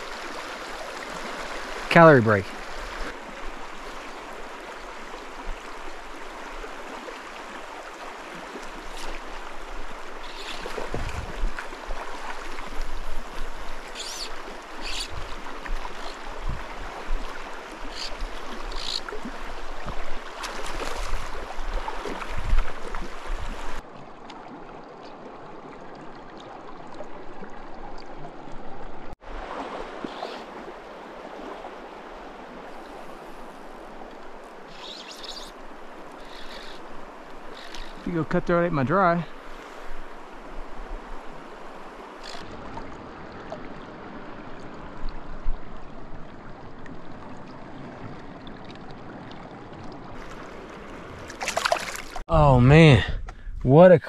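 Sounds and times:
stream rushing over rocks: 0.0s - 23.9s, 50.0s - 53.0s.

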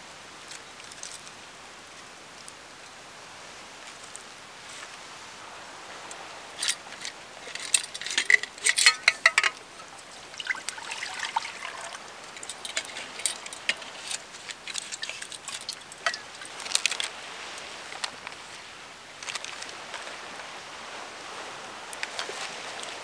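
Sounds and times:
rain pattering: 0.0s - 23.0s
water trickling: 6.1s - 18.3s
metal cookware clinking: 7.4s - 9.6s, 15.1s - 16.4s.

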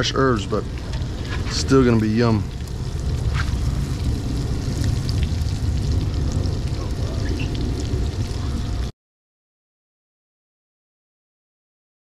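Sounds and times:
fish sizzling in butter: 0.0s - 8.9s
steady low rumble: 0.0s - 8.9s
small pops and crackles: 0.7s - 8.3s.

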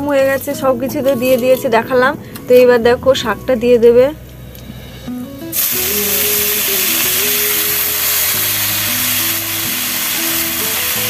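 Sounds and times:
background music: 0.0s - 11.0s
greens sizzling in hot oil: 5.5s - 11.0s.

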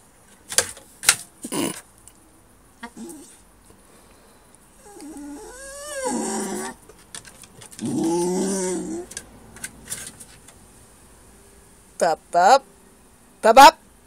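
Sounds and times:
dog whining and grumbling: 2.8s - 3.4s, 4.8s - 6.8s, 7.7s - 9.2s.

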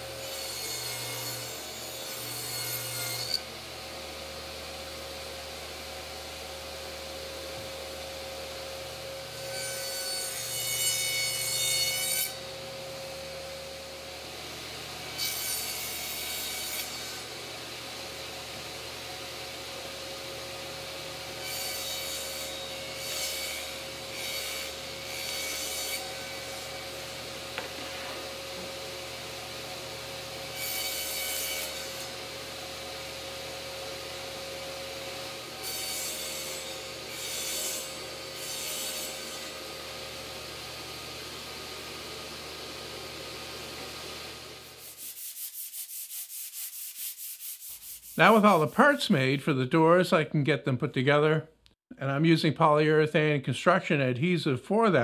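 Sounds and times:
saw cutting plywood: 0.0s - 3.6s, 9.3s - 12.6s, 15.0s - 18.6s, 21.3s - 33.2s, 33.8s - 41.7s, 44.0s - 49.0s
table saw running: 0.0s - 44.9s.

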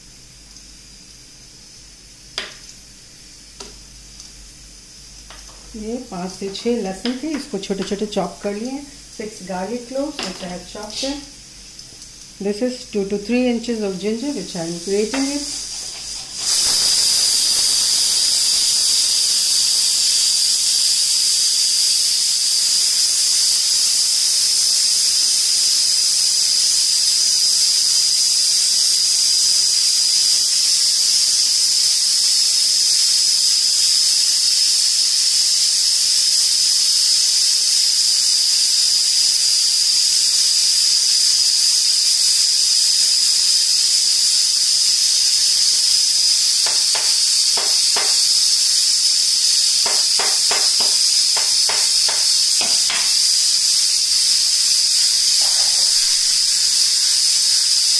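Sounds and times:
pressure cooker whistling: 12.4s - 57.9s.

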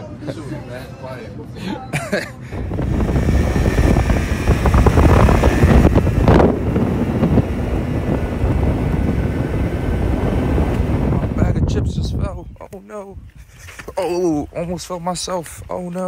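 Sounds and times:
steady low rumble: 2.5s - 12.4s
wind buffeting microphone: 2.5s - 15.7s.

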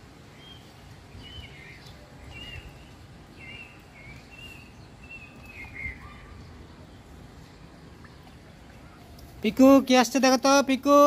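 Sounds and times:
small bird chirping: 0.4s - 6.6s.

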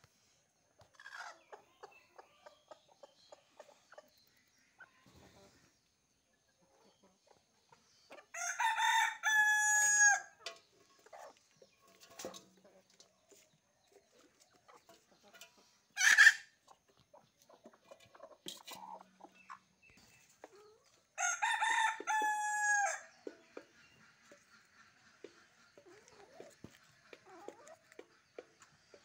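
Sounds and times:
hens clucking softly: 0.6s - 8.4s, 10.4s - 21.2s, 21.8s - 29.0s
rooster crowing: 8.4s - 10.3s, 21.2s - 23.0s.

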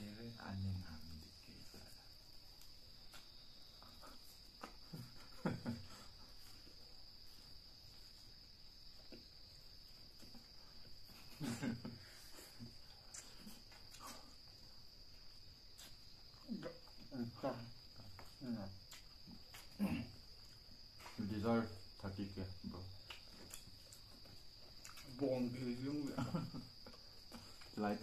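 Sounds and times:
soft chewing: 12.0s - 17.1s, 17.8s - 21.2s, 23.0s - 25.2s
murmurs: 19.5s - 20.3s.

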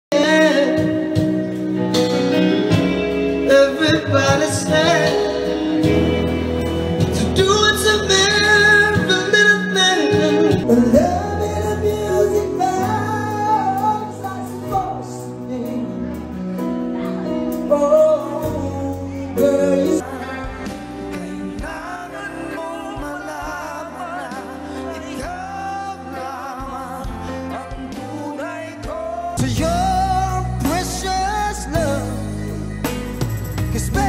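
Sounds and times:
man singing into microphone: 0.0s - 6.1s, 7.0s - 32.7s, 33.7s - 34.0s
backing music: 0.1s - 34.0s.

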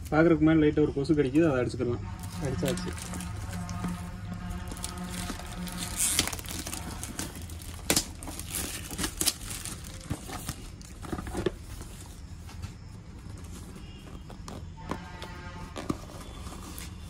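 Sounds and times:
plastic wrap crinkling and tearing: 2.1s - 12.2s.

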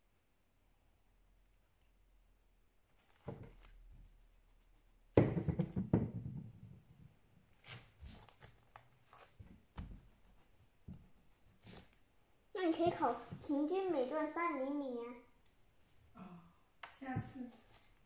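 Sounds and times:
paper rustling: 2.8s - 4.3s, 7.5s - 12.0s.

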